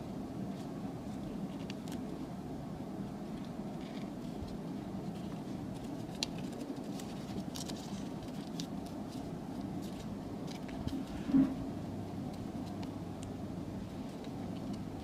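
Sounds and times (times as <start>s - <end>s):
low background hum: 0.0s - 15.0s
paper crinkling and creasing: 0.5s - 2.2s, 3.3s - 11.5s.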